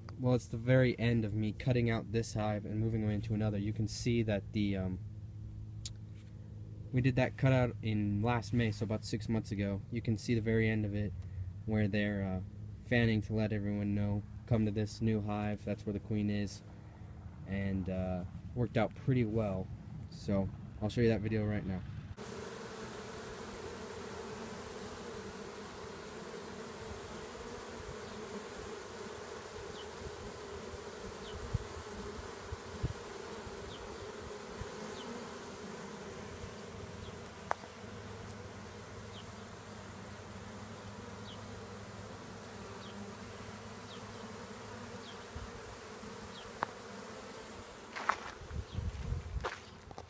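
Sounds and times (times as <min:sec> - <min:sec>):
honeybees buzzing: 0:22.2 - 0:50.0.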